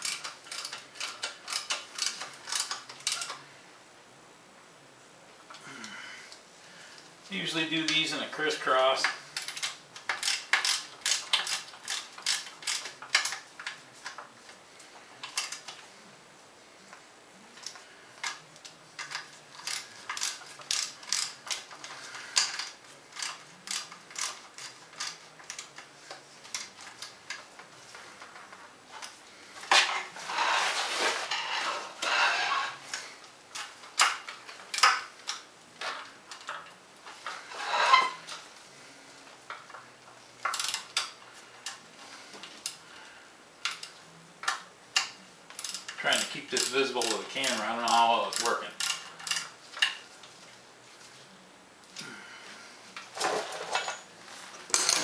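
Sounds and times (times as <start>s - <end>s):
socket ratchet clicking: 0.0s - 3.4s, 9.4s - 13.4s, 22.4s - 25.8s.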